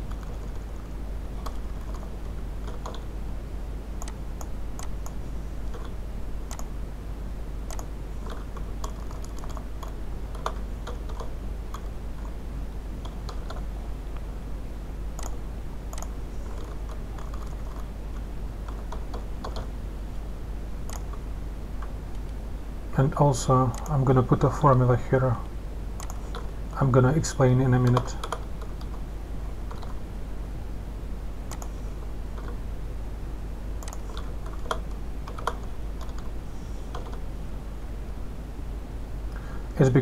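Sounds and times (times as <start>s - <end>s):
keyboard typing: 0.0s - 0.7s, 1.4s - 3.1s, 4.0s - 6.7s, 7.7s - 12.4s, 13.0s - 13.7s, 15.2s - 17.9s, 18.6s - 19.7s, 20.9s - 21.2s, 26.0s - 26.5s, 27.8s - 29.0s, 29.6s - 30.0s, 31.5s - 31.8s, 32.4s - 32.6s, 33.8s - 36.3s, 36.9s - 37.2s
steady low hum: 0.0s - 40.0s
mouse clicks: 4.0s - 6.7s, 7.7s - 12.3s, 15.2s - 17.9s, 20.9s - 21.2s, 26.0s - 26.5s, 31.5s - 31.8s, 33.8s - 36.3s.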